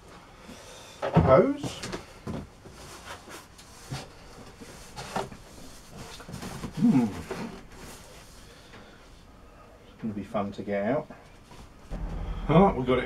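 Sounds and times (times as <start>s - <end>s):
cardboard and plastic packaging rustling: 1.6s - 8.5s.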